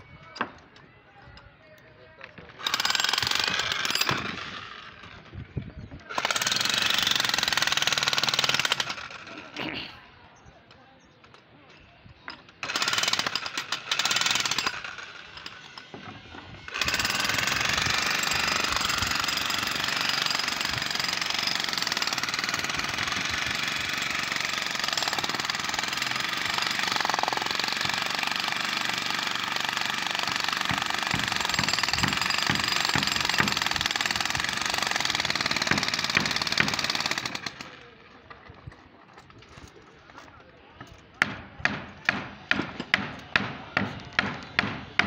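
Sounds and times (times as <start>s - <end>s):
demolition hammer chiselling concrete: 2.6s - 4.6s, 6.1s - 9.2s, 12.6s - 15.7s, 16.7s - 37.7s.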